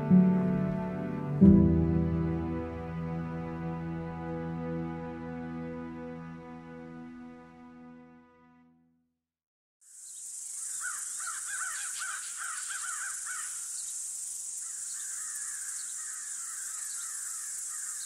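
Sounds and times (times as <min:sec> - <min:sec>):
background music: 0:00.0 - 0:08.9
steady high hiss: 0:09.9 - 0:18.0
crows cawing: 0:10.6 - 0:13.7, 0:14.6 - 0:18.0.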